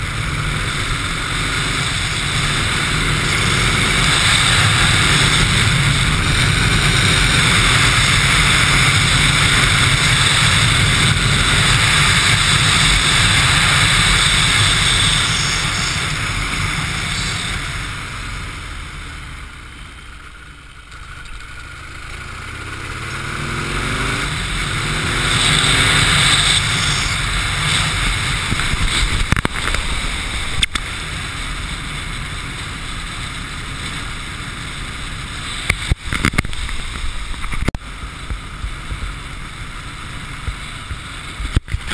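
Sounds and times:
motorcycle engine: 0.0s - 41.9s
wind rush on microphone: 24.3s - 32.4s.

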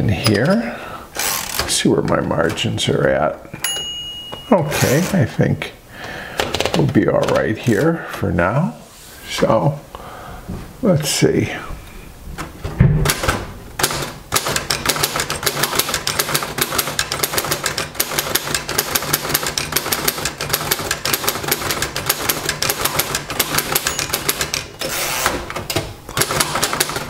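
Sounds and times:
typewriter typing: 6.4s - 7.6s, 13.0s - 27.0s.

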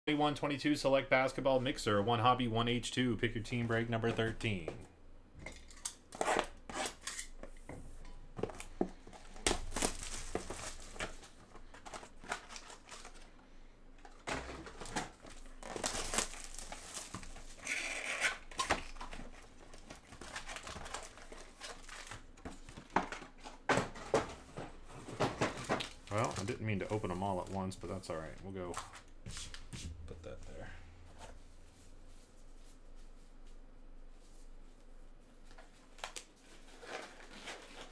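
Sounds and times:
plastic wrap crinkling and tearing: 9.4s - 13.3s, 14.7s - 22.4s.

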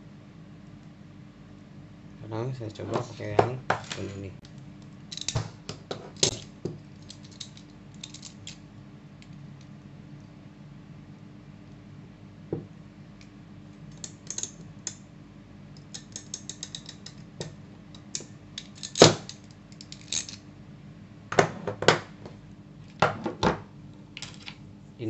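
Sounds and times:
crimping pliers clicking: 5.1s - 5.4s, 15.8s - 17.2s
tool being handled: 5.1s - 8.6s.

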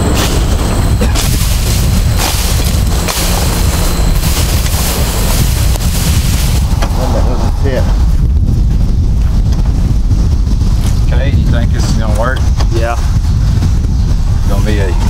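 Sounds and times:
weeds rustling and snapping: 0.0s - 7.1s
wind buffeting microphone: 0.0s - 15.0s.

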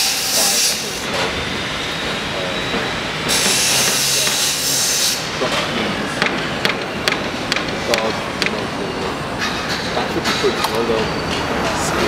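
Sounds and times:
loud hiss: 0.0s - 1.1s, 3.2s - 5.4s.

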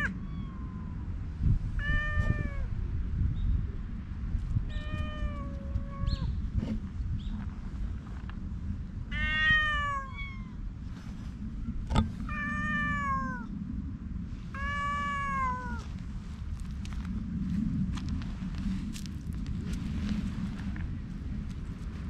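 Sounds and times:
cat meowing: 0.0s - 1.0s, 1.8s - 2.7s, 4.7s - 6.3s, 9.1s - 10.6s, 12.2s - 13.5s, 14.6s - 15.8s.

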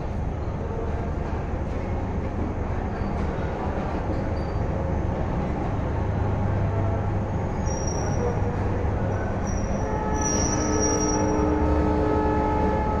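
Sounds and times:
train coaches rumbling past: 0.0s - 13.0s
steel wheels squealing: 4.3s - 4.7s, 7.5s - 8.5s, 9.3s - 11.5s.

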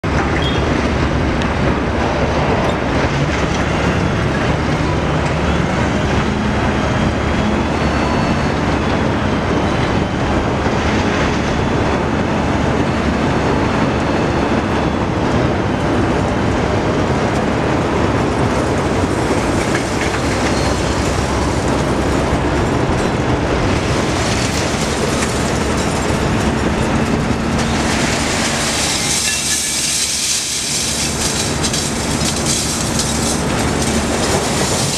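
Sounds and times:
truck engine running: 0.0s - 34.9s
scrap metal sliding and clattering: 23.7s - 34.9s.

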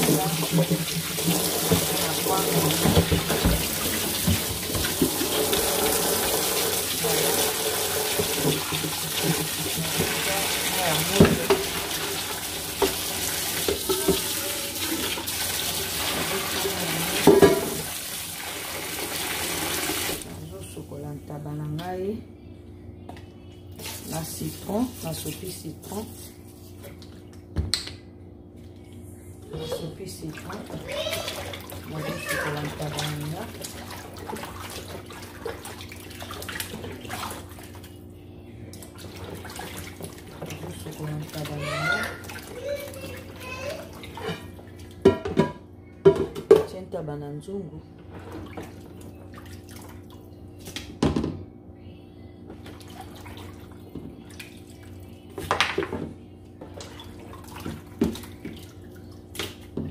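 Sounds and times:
tap running into sink: 0.0s - 10.2s
water splashing in a plastic basin: 0.0s - 20.3s, 29.6s - 38.0s, 38.7s - 45.2s, 48.1s - 51.0s, 52.5s - 59.9s
pot clanking: 17.1s - 17.9s, 44.2s - 46.7s.

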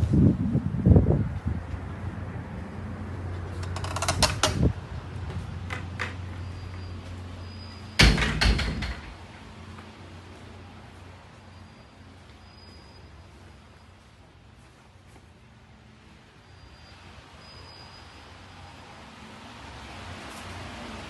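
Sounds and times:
door handle and latch clicking: 3.6s - 4.7s, 8.0s - 9.2s
glass door shutting with thud: 8.0s - 9.2s.

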